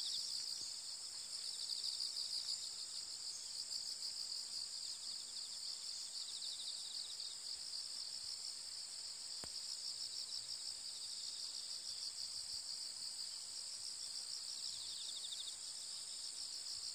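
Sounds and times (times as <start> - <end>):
faint click: 9.4 - 9.6.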